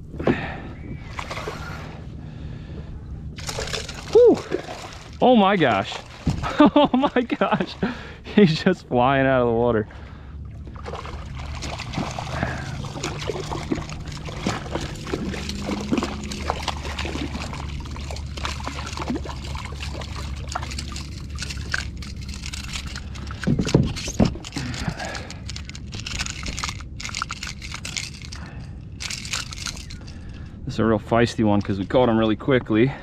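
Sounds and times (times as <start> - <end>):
steady low hum: 0.0 - 33.0
fish thrashing and water splashing: 0.9 - 2.0, 3.4 - 8.3, 10.4 - 30.3.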